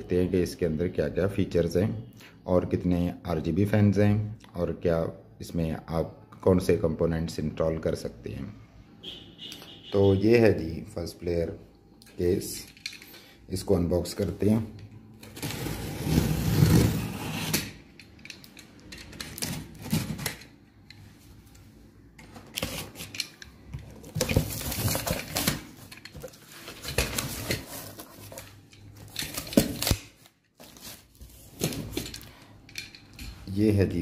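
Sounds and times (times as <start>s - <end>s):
cardboard scraping and rustling: 15.2s - 17.7s, 23.9s - 29.9s, 30.6s - 32.1s.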